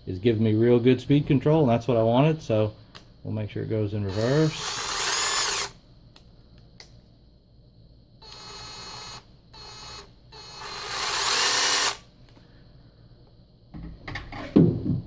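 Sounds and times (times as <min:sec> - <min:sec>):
cordless drill motor running: 0:04.1 - 0:05.8, 0:08.2 - 0:12.0.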